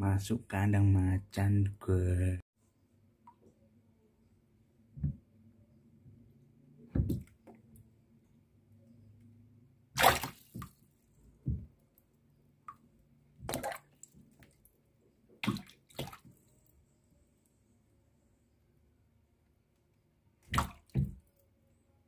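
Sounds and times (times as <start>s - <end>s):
water splashing in tub: 10.0s - 10.8s, 13.4s - 14.5s, 15.4s - 16.4s, 20.5s - 21.3s.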